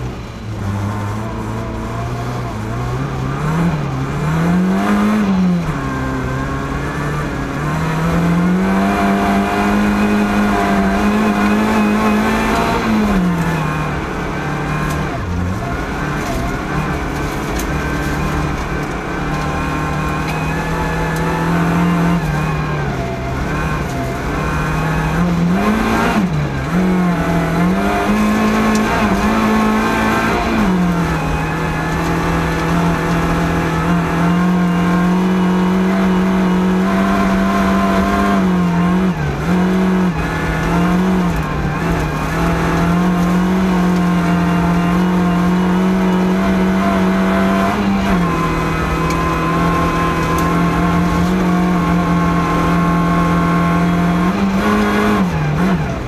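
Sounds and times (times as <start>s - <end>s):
rally car engine revving through gears: 0.0s - 56.0s.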